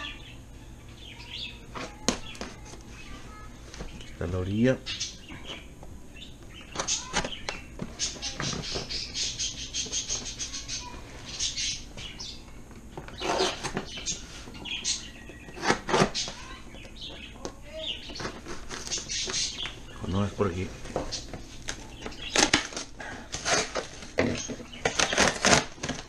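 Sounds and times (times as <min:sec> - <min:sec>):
cardboard box tearing: 0:22.3 - 0:26.0.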